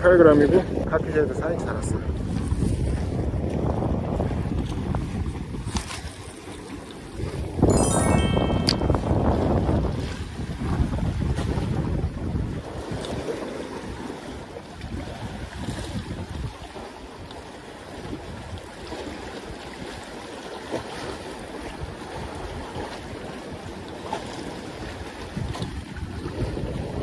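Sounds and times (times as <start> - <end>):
water lapping against concrete: 0.0 - 7.4, 10.3 - 27.0
wind rumbling on microphone: 0.0 - 7.7, 8.7 - 17.2, 24.7 - 27.0.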